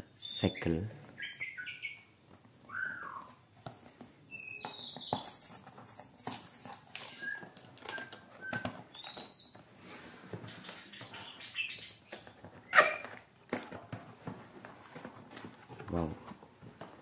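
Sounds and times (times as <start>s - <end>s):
birds chirping: 0.0s - 13.2s.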